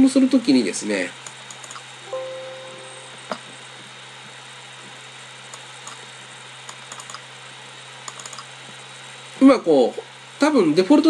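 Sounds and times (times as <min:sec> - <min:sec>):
low electrical hum and hiss: 0:00.0 - 0:11.0
computer mouse clicking: 0:01.2 - 0:01.9, 0:05.5 - 0:06.0, 0:06.7 - 0:07.2, 0:08.1 - 0:08.5.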